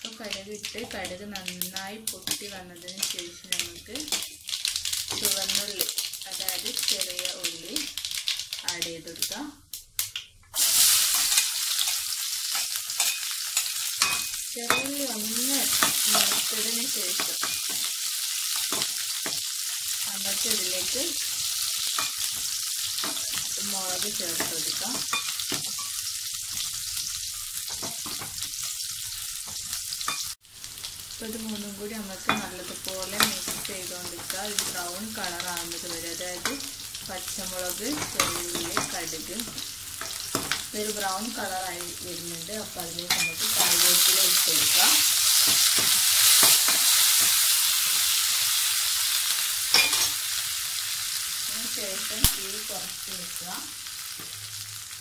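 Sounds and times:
shallots sizzling in oil: 0:00.0 - 0:55.0
metal spoon clink: 0:13.0 - 0:14.9, 0:43.1 - 0:43.4, 0:49.7 - 0:50.2.

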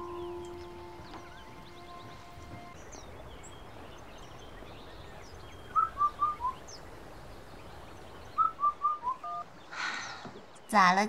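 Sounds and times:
whistled descending notes: 0:00.0 - 0:02.8, 0:05.6 - 0:06.6, 0:08.4 - 0:09.4
faint bird chirps: 0:00.0 - 0:11.0.

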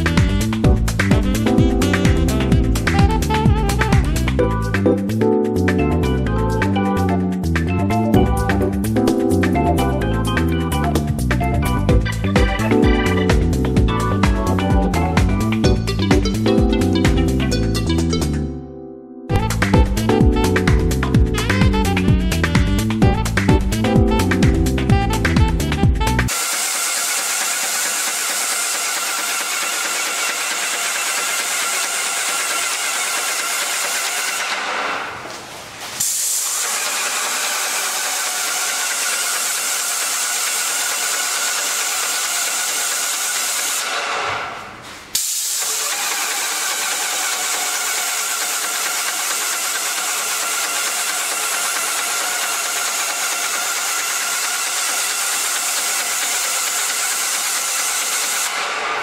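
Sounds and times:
paint sprayer hiss: 0:26.3 - 0:59.0.

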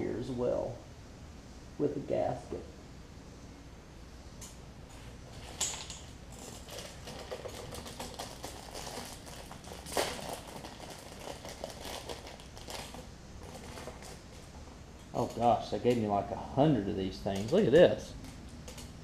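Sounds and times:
plastic bag crinkling: 0:05.4 - 0:14.4.

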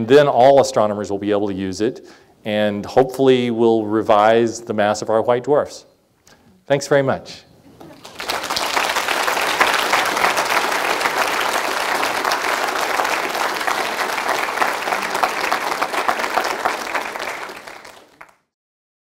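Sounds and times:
audience applauding: 0:07.8 - 0:18.5.

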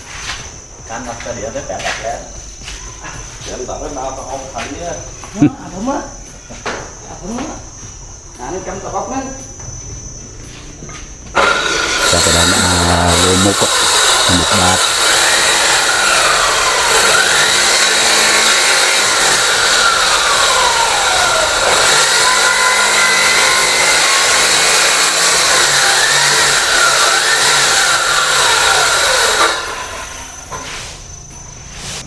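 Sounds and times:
circular saw cutting wood: 0:11.4 - 0:30.8.

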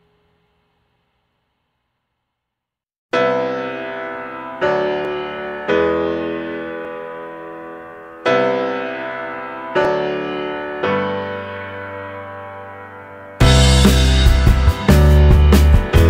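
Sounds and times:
slow ringing piano chords: 0:03.2 - 0:15.3.

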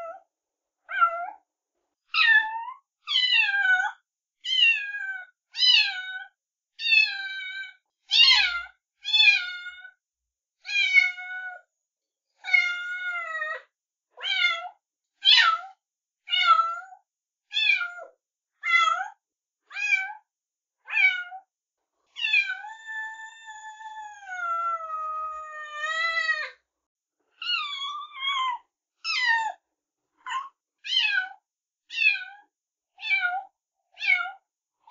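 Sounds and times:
cat meowing: 0:02.2 - 0:07.6, 0:10.7 - 0:11.6, 0:12.4 - 0:13.6, 0:14.2 - 0:18.1, 0:18.7 - 0:20.2, 0:20.9 - 0:21.4, 0:22.2 - 0:26.6, 0:27.4 - 0:29.6, 0:30.3 - 0:34.4.

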